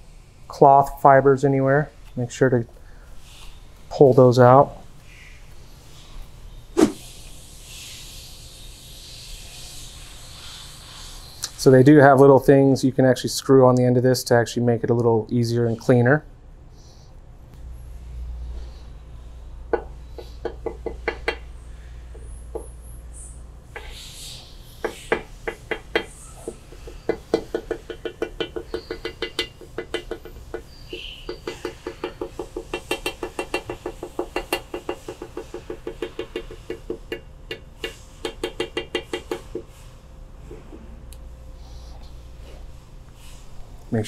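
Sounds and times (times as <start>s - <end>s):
applicator tapping on metal: 24.8s - 39.7s.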